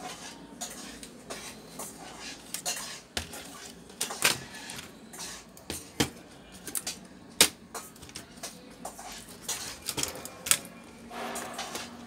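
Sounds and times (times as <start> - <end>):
plastic laptop parts clicking and knocking: 5.7 - 8.6, 9.4 - 10.7.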